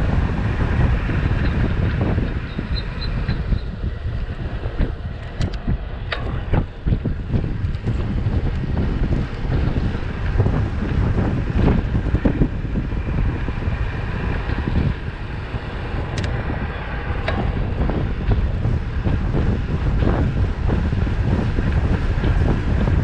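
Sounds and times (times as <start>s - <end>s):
wind buffeting microphone: 0.0s - 23.0s
sharp clicks: 16.1s - 16.4s.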